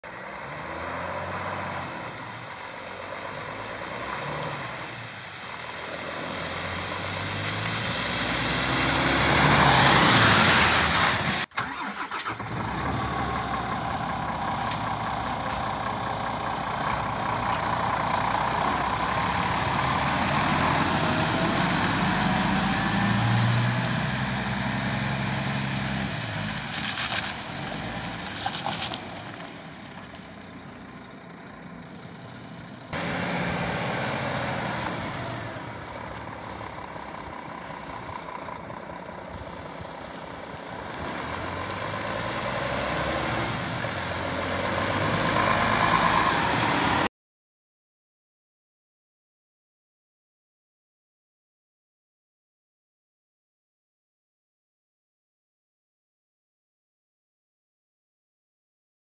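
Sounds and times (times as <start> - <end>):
truck diesel engine: 0.0 - 47.1
truck tyres: 0.0 - 47.1.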